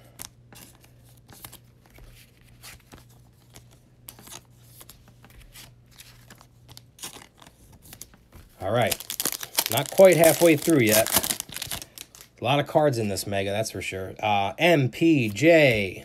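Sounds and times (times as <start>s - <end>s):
plastic card sleeve rustling: 0.1s - 12.4s.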